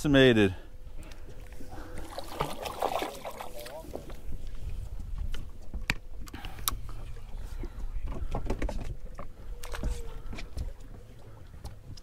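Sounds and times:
wind and water rumble: 0:00.0 - 0:12.0.

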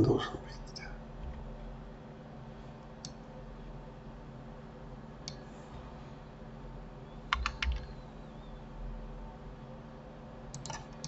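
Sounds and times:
low steady hum: 0:00.0 - 0:11.0
keyboard keystrokes: 0:07.3 - 0:07.9, 0:10.5 - 0:11.0.

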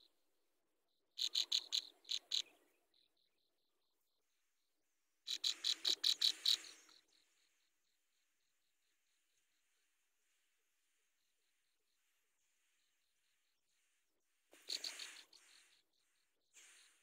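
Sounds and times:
songbirds harsh chattering calls: 0:01.2 - 0:02.8, 0:05.2 - 0:07.6, 0:14.5 - 0:17.0.

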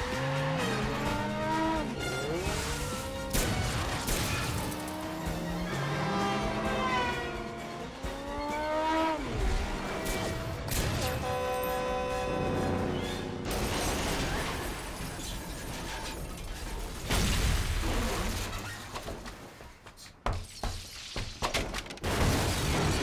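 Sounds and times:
vehicles smashing: 0:13.0 - 0:18.6.

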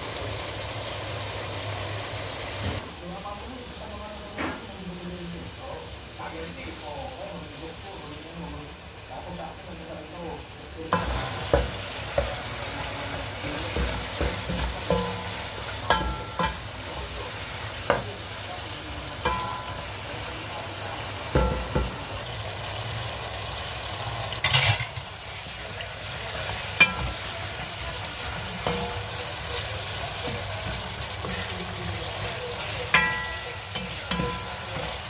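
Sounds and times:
food sizzling in hot oil: 0:00.0 - 0:35.0
wooden spatula knocking on pan: 0:11.0 - 0:12.4, 0:13.7 - 0:16.6, 0:17.8 - 0:18.1, 0:21.3 - 0:22.0, 0:32.2 - 0:35.0.

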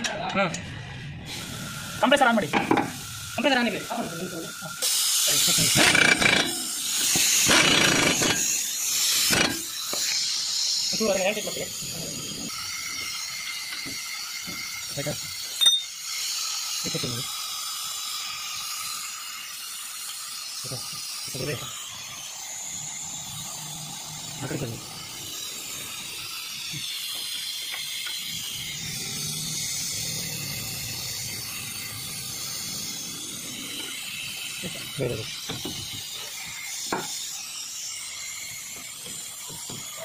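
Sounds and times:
steady high hiss: 0:01.4 - 0:40.0.

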